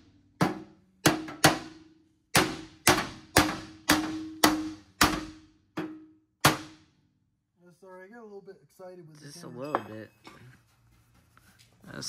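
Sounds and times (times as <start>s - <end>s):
hammer striking steel: 0.4s - 6.8s.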